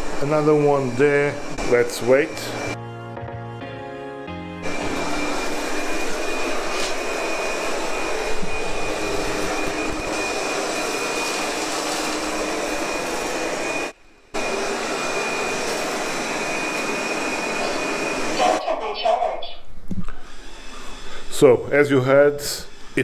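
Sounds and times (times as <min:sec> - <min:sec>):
robot vacuum cleaner running: 0:00.0 - 0:02.8, 0:04.6 - 0:18.8.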